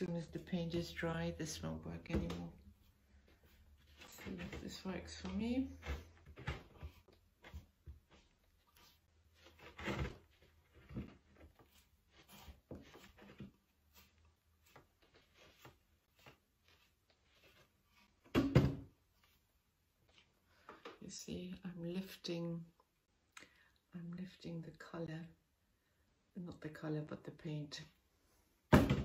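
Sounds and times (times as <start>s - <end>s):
soft taps and scuffs: 2.0s - 9.8s, 10.4s - 18.2s
sponge dabbing on ceramic: 11.7s - 18.2s.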